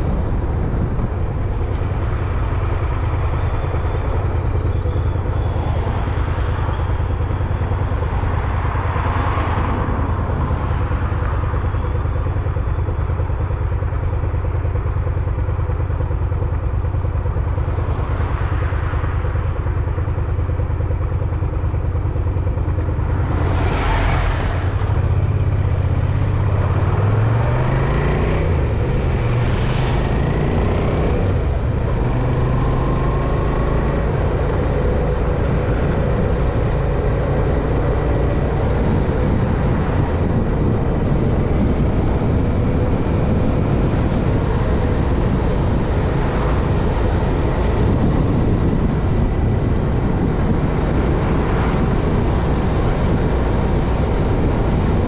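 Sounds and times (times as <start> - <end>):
road noise: 0.0 - 55.0
vehicle engine running: 0.0 - 55.0.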